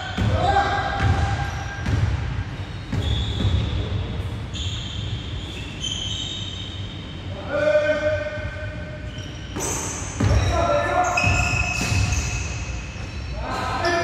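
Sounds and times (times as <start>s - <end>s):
sneakers squeaking on court: 0.0s - 7.3s, 8.8s - 14.0s.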